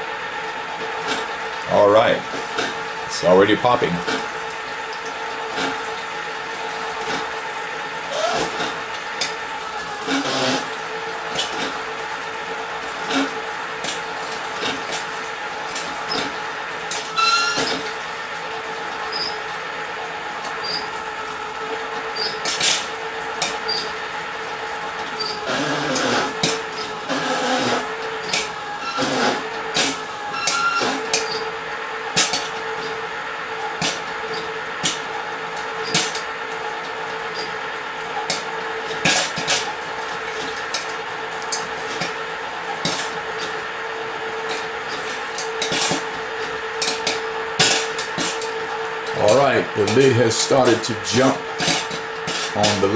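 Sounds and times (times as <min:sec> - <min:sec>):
popcorn machines humming: 0:00.0 - 0:52.9
popcorn popping: 0:20.2 - 0:33.0, 0:33.6 - 0:52.9.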